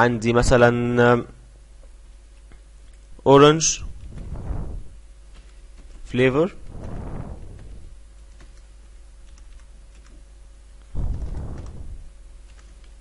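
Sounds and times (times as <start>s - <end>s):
muffled rush of noise: 3.8s - 5.2s, 6.6s - 8.1s, 10.9s - 12.4s.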